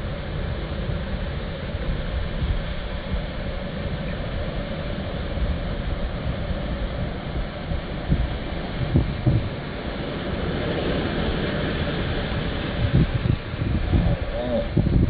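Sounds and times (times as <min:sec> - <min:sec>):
surf breaking on shore: 0:00.0 - 0:15.0
wind buffeting microphone: 0:00.0 - 0:15.0.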